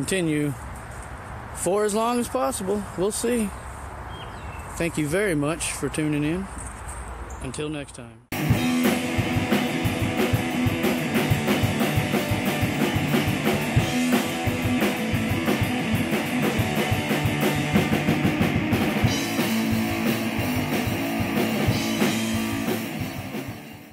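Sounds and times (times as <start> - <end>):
rock music with drums and guitar: 8.3 - 23.9.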